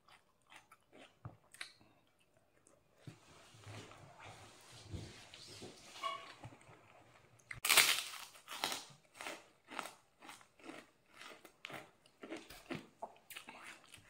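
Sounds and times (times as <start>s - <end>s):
close-up rhythmic chewing: 0.0s - 3.1s, 9.1s - 14.0s
crunchy bite into lettuce: 7.6s - 11.9s.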